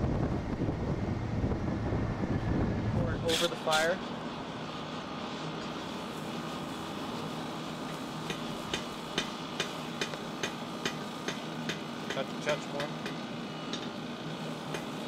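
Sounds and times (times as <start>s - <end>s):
steady background hum: 0.0s - 15.0s
hammer strikes on metal: 8.3s - 13.9s.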